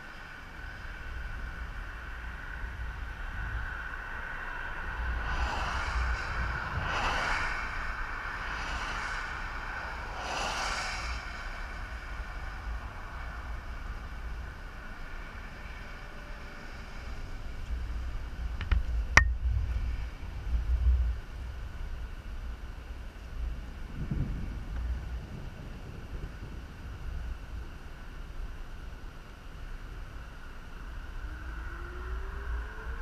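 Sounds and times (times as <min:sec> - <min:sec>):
vehicles whooshing past: 0:00.0 - 0:21.7
wind buffeting microphone: 0:00.6 - 0:15.8, 0:16.8 - 0:29.0.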